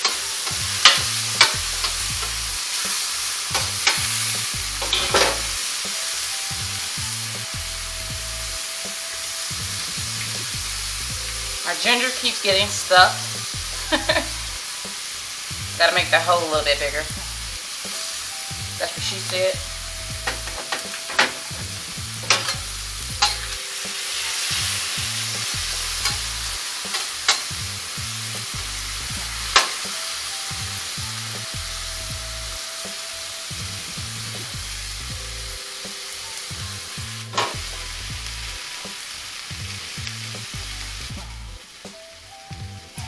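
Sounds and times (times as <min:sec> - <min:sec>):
meat sizzling on griddle: 0:00.0 - 0:43.0
metal spatula scraping: 0:03.5 - 0:05.6, 0:20.2 - 0:27.6.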